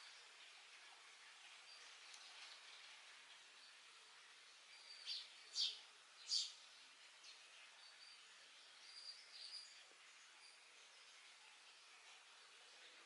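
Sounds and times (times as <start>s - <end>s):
faint outdoor hiss: 0.0s - 13.0s.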